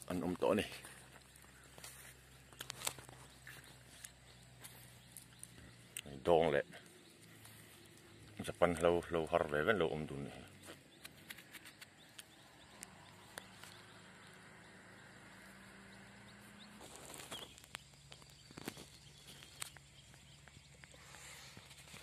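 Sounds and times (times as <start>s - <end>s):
light clicks and rustles: 0.6s - 5.7s, 10.6s - 13.9s, 16.8s - 22.0s.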